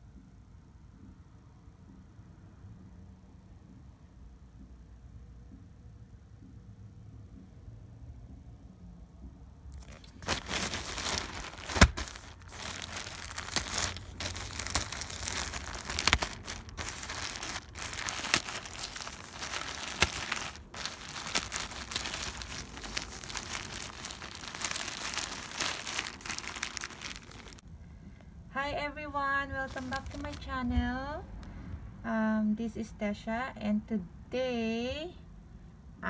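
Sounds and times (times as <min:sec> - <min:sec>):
plastic packaging crinkling: 0:09.8 - 0:27.6, 0:29.6 - 0:30.6.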